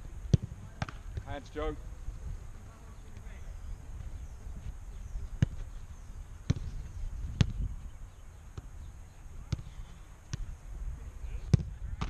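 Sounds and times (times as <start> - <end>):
soccer ball thuds: 0.3 - 1.5, 5.3 - 5.7, 6.4 - 7.7, 9.4 - 10.5, 11.4 - 12.0.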